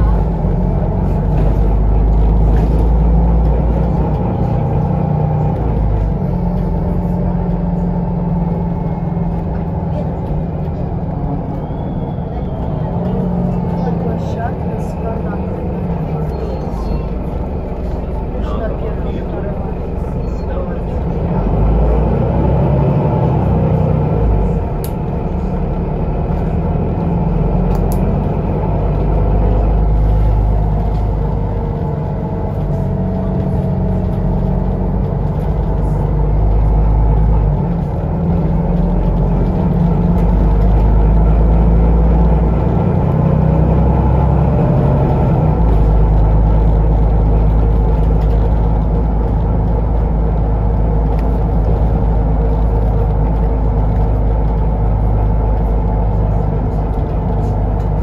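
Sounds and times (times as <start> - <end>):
bus engine rumble: 0.0 - 58.0
road noise: 0.0 - 58.0.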